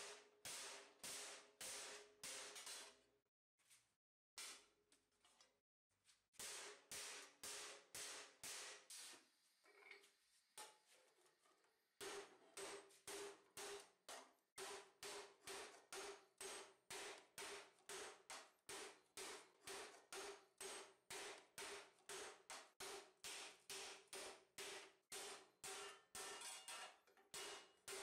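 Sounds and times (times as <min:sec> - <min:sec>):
hammer striking steel plate: 0:00.0 - 0:03.0, 0:06.4 - 0:08.9, 0:12.0 - 0:28.0.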